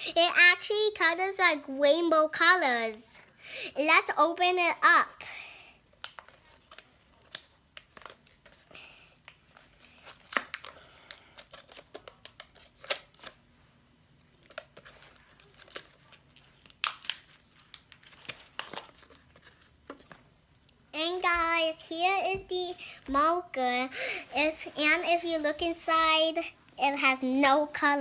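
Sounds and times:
packaging crinkling and tearing: 6.0s - 13.4s, 14.2s - 20.8s.

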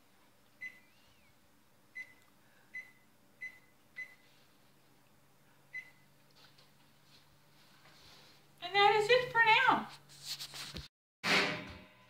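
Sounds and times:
microwave keypad beeps: 0.6s - 1.0s, 2.0s - 4.2s, 5.7s - 6.0s.

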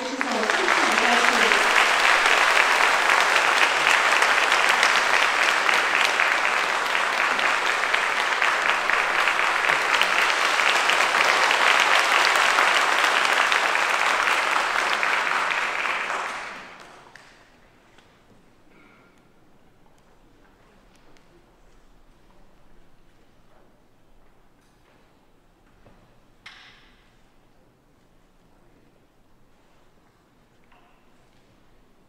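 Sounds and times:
audience applause: 0.0s - 17.3s.

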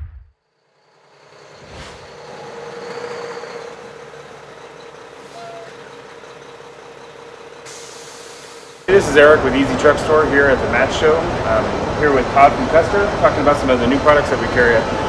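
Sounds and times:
low hum: 0.0s - 0.4s, 1.6s - 2.4s
truck rushing hiss: 0.7s - 12.2s.

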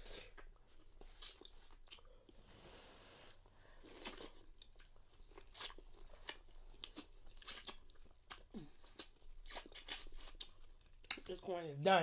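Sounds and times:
biting and chewing corn: 3.8s - 11.4s.

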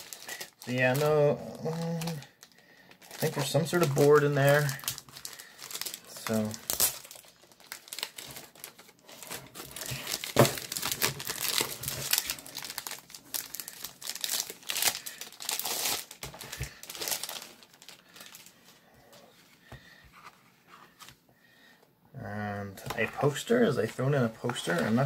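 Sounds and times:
plastic bag crinkling: 0.0s - 19.2s.

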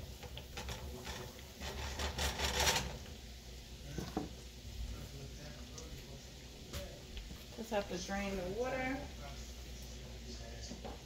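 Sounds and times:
utensil scraping frying pan: 0.0s - 4.6s.

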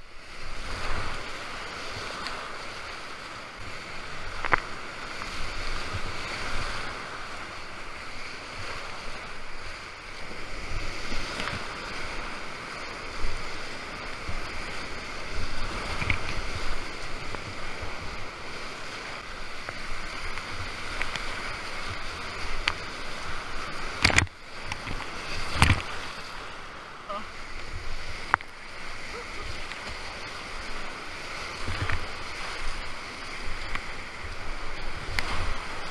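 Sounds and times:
wind buffeting microphone: 0.3s - 35.9s
whitewater rapids rushing: 0.4s - 35.9s.

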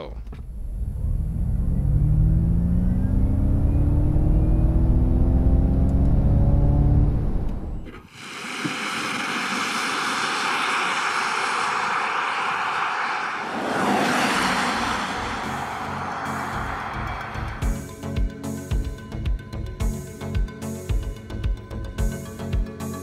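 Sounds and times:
road rumble: 0.0s - 8.0s, 9.6s - 17.9s
electric drive whine: 0.3s - 8.0s
car driving away: 0.3s - 17.9s.

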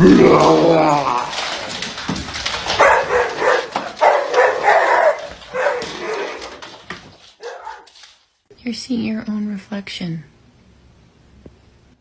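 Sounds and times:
dog barking: 2.8s - 6.6s, 7.4s - 7.9s.

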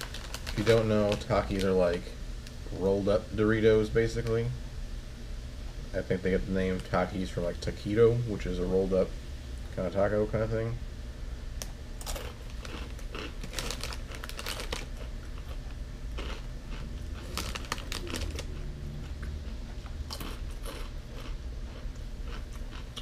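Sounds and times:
chips crunching and chewing: 0.0s - 2.0s, 11.6s - 23.0s
snack bag crinkling: 0.0s - 2.0s, 12.0s - 23.0s.

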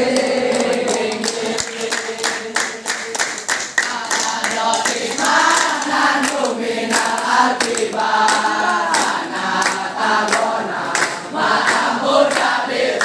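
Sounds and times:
boys chanting in unison: 0.0s - 3.2s, 3.8s - 13.0s
rhythmic hand clapping: 0.0s - 13.0s.

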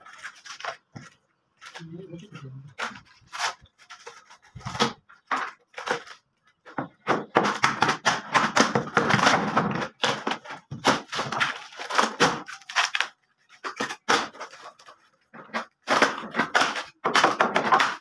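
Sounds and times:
thin wood cracking and ripping: 9.2s - 15.0s.

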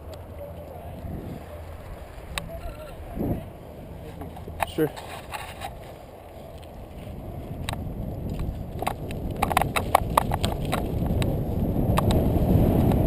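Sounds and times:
tyres rumbling on dirt: 0.0s - 13.0s
wind on microphone: 0.0s - 13.0s
bike rattling over rocks: 4.0s - 13.0s.

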